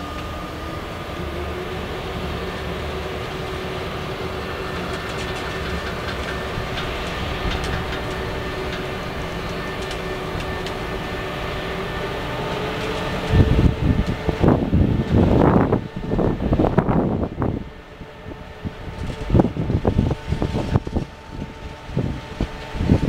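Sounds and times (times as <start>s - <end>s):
freight train humming past: 0.0s - 23.0s
wheels clicking on rails: 0.0s - 23.0s.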